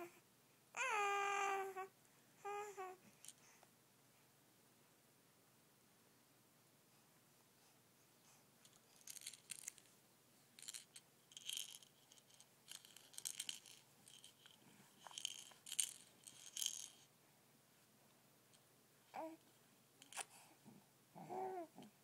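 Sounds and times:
baby rattle toy shaken: 8.6s - 9.9s, 10.6s - 17.1s.

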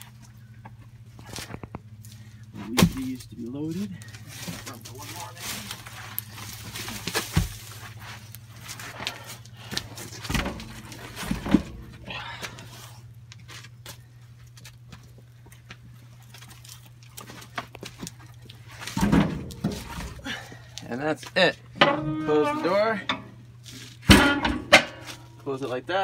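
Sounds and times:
steady low hum: 0.0s - 26.0s
logs knocking and thudding: 18.8s - 20.3s.

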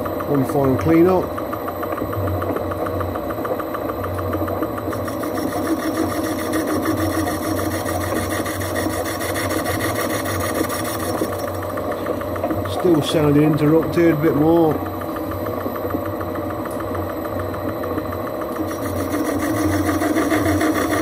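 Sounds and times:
lathe machine hum: 0.0s - 21.0s
lathe cutting tool scraping: 4.1s - 14.8s, 18.4s - 21.0s.

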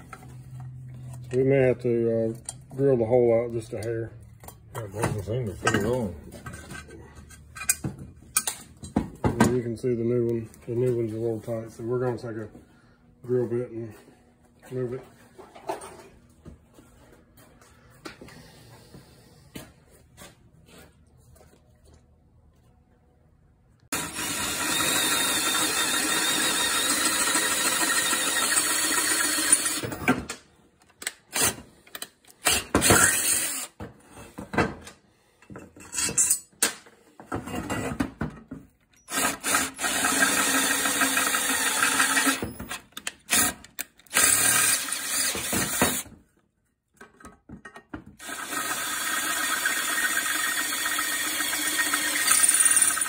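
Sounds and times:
electric drill drilling steel: 23.9s - 30.0s, 32.4s - 33.7s, 39.1s - 46.0s, 48.2s - 53.0s.

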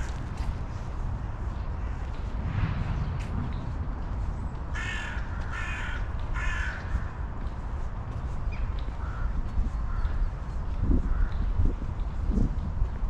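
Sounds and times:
steady low rumble: 0.0s - 13.0s
crow cawing: 4.7s - 7.1s.

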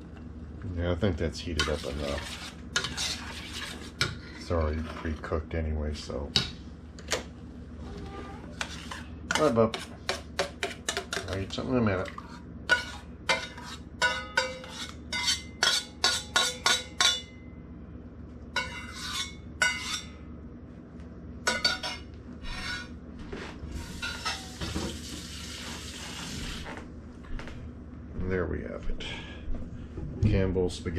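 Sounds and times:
spatula scraping a saucepan: 1.5s - 5.4s, 7.9s - 17.2s, 18.6s - 20.1s, 21.5s - 26.7s.

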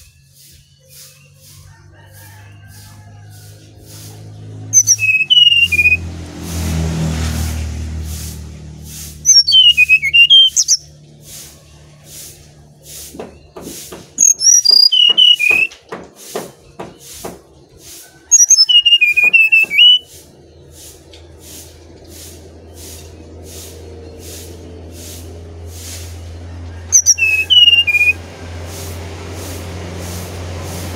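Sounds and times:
bird singing whistled phrases: 4.8s - 6.0s, 9.2s - 10.9s, 14.2s - 15.7s, 18.4s - 20.1s, 27.0s - 28.2s.

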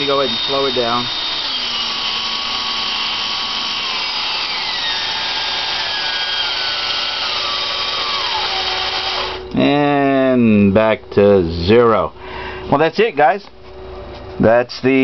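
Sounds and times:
electric drill motor whine: 0.0s - 9.6s
steady whirring: 0.0s - 9.8s.

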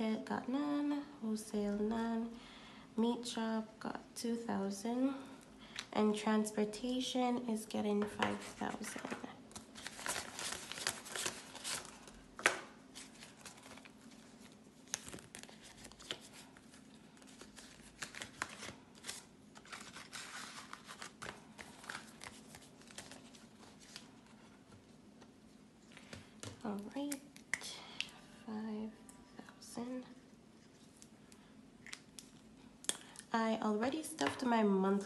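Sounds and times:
banknotes rustling: 8.4s - 24.4s.

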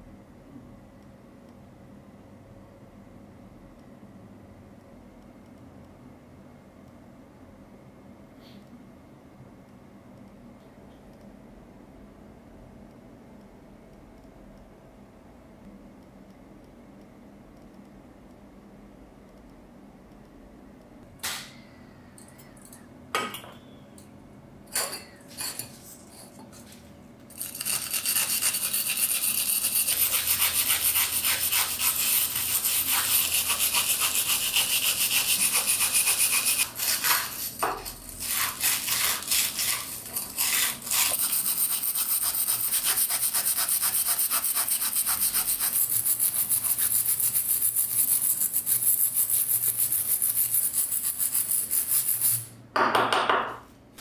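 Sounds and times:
wire brush scratching metal: 27.3s - 52.5s.

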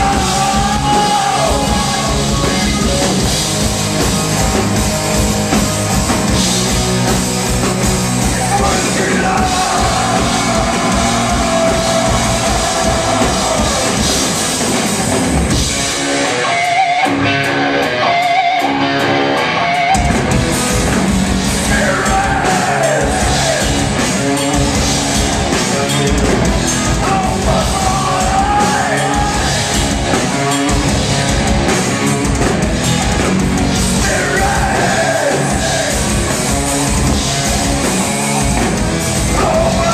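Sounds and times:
lead vocals: 0.0s - 3.3s, 8.1s - 15.7s, 21.4s - 24.5s, 26.6s - 30.4s, 33.8s - 37.2s, 39.0s - 39.9s
distorted electric guitars: 0.0s - 39.9s
drum kit: 0.0s - 39.9s.

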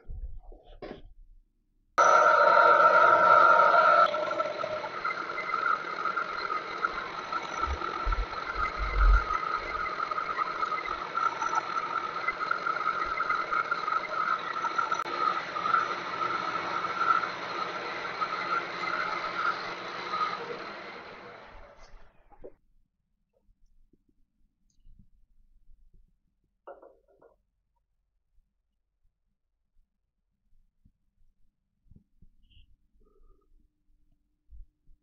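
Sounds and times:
milling machine running: 2.0s - 22.1s
milling machine cutting whine: 2.0s - 22.4s.

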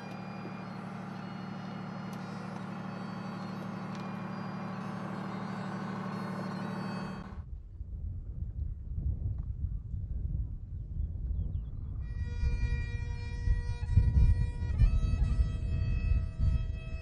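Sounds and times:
diesel engine droning: 0.0s - 7.5s, 12.0s - 17.0s.

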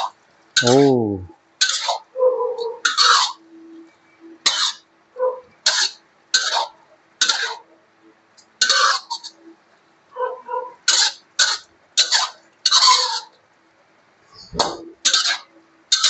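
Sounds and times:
metal spatula scraping a wok: 8.6s - 9.3s, 14.6s - 16.0s.

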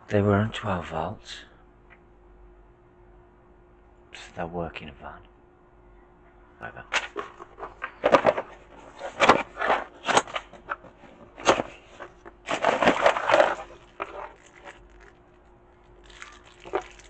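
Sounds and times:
plastic packaging rustling: 7.0s - 17.0s.

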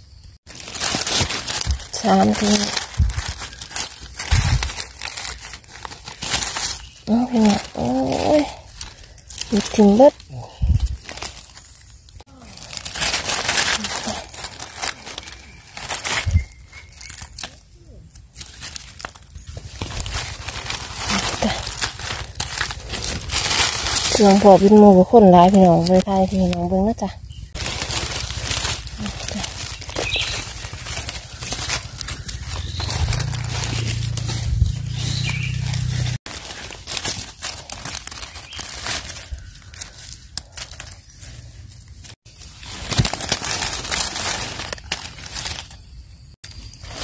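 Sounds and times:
dry leaves rustling: 0.1s - 47.0s.

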